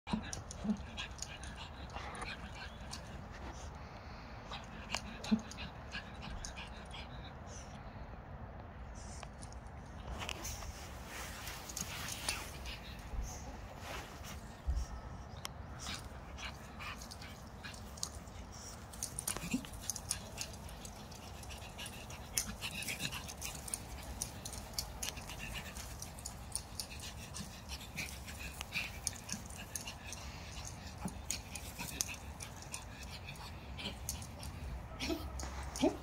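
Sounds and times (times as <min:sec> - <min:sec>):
small dog sounds: 0:00.1 - 0:03.8, 0:09.2 - 0:36.0
rustles and clicks: 0:09.1 - 0:36.0.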